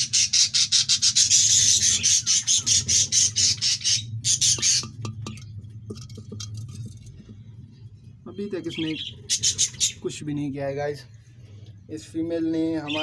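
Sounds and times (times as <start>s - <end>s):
budgerigar squawking: 0.0s - 5.4s, 8.6s - 10.1s.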